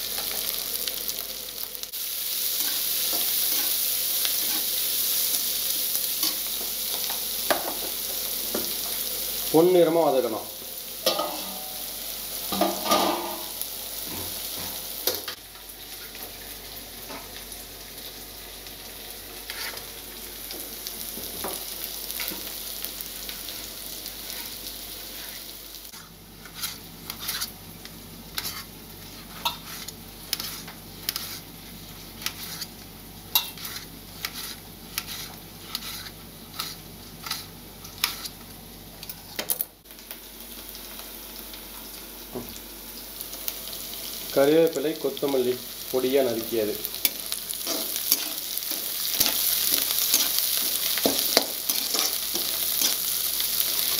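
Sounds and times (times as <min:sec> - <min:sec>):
vegetables sizzling in oil: 0:00.0 - 0:53.9
metal spatula scraping a pan: 0:04.4 - 0:04.8, 0:11.0 - 0:11.8, 0:19.5 - 0:19.8, 0:24.2 - 0:27.6, 0:28.3 - 0:31.5, 0:32.2 - 0:32.7, 0:33.3 - 0:38.4, 0:47.6 - 0:53.1.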